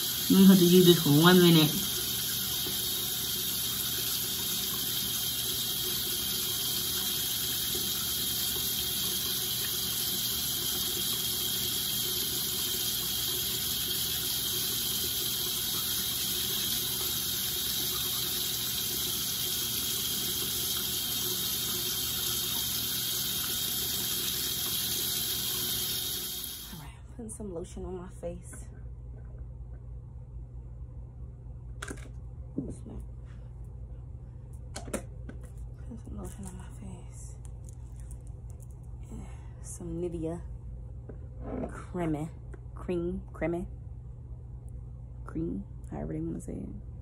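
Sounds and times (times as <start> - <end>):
water running from sink tap: 0.0 - 26.8.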